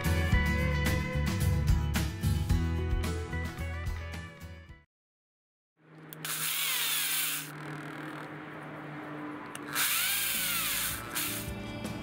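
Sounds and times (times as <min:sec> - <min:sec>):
power drill cutting metal: 0:06.2 - 0:07.6, 0:09.6 - 0:11.6.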